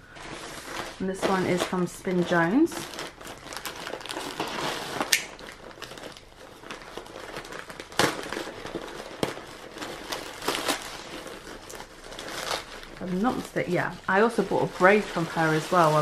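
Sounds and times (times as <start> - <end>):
plastic mailer bag crinkling: 0.0 - 16.0
plastic snapping: 5.0 - 5.5.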